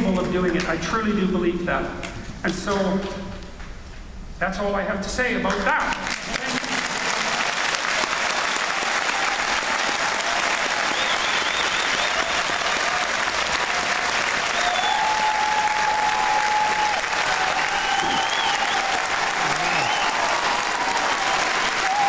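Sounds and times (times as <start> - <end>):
audience applauding: 5.5 - 22.0.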